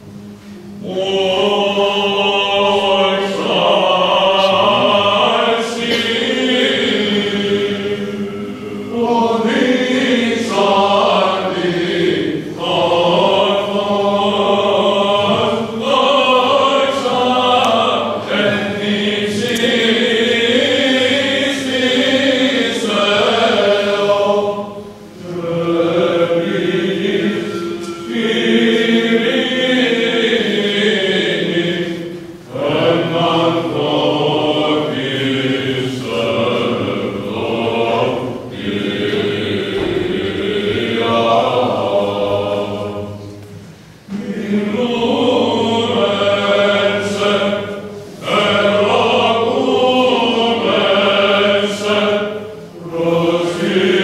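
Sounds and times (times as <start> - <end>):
held drone note: 0.0 - 34.0
voices chanting a hymn: 0.0 - 54.0.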